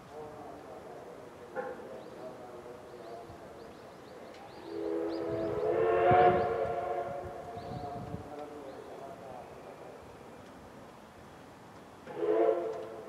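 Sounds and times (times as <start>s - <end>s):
steam locomotive whistle: 4.7s - 7.5s, 12.1s - 13.0s.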